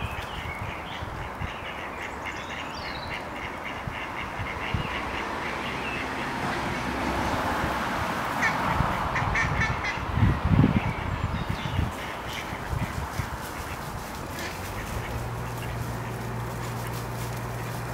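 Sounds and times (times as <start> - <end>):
small birds chirping: 0.0 - 3.8, 10.5 - 17.9
ducks quacking: 0.0 - 17.9
steady background rush: 3.4 - 17.9.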